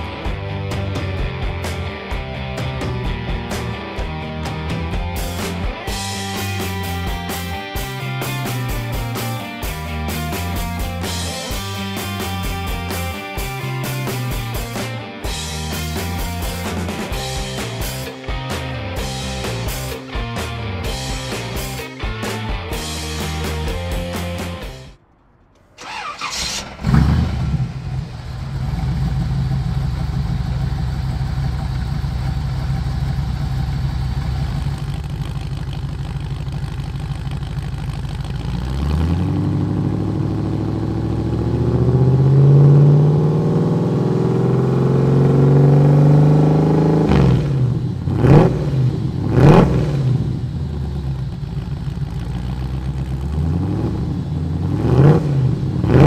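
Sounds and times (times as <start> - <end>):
car engine idling and revving: 0.0 - 56.0
starter cranking engine: 25.8 - 39.2.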